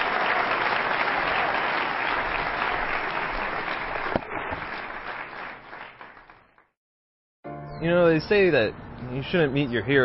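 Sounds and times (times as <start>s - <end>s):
large audience applauding: 0.0s - 6.8s.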